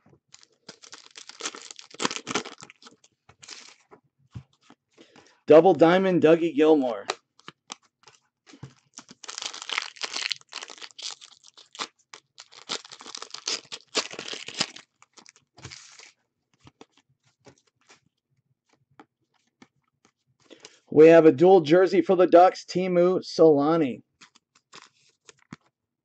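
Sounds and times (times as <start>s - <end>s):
cards rustling and crinkling: 0.2s - 5.4s, 6.8s - 18.1s, 24.2s - 25.7s.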